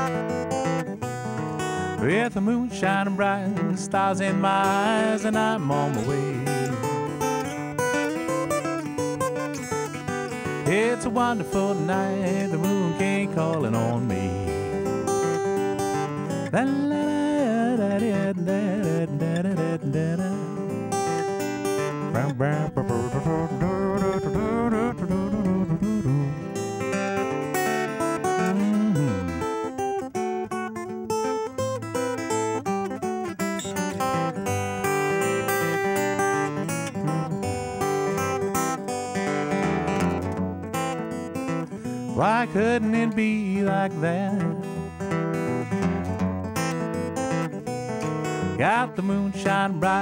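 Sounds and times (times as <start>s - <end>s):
acoustic guitar fingerpicking: 0.0s - 50.0s
man singing wordlessly: 1.8s - 7.6s, 9.6s - 29.7s, 36.8s - 38.8s, 42.0s - 45.9s, 48.4s - 50.0s.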